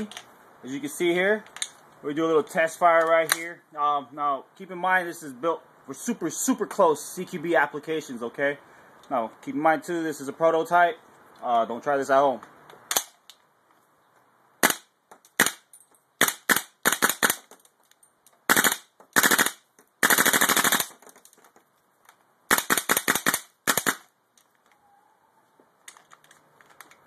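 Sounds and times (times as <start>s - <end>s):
airsoft rifle shots: 14.6s - 15.6s, 16.2s - 17.5s, 18.5s - 21.0s, 22.5s - 24.1s.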